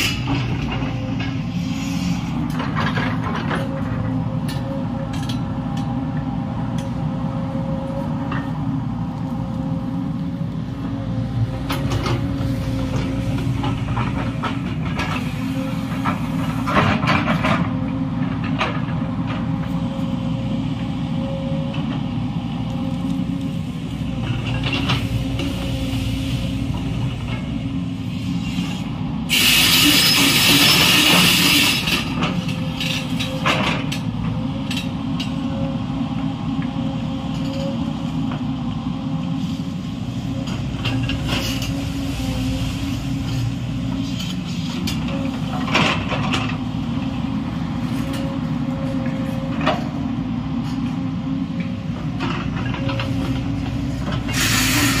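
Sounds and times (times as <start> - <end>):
excavator diesel engine running: 0.0 - 55.0
loud rushing hiss: 28.1 - 31.9, 54.3 - 55.0.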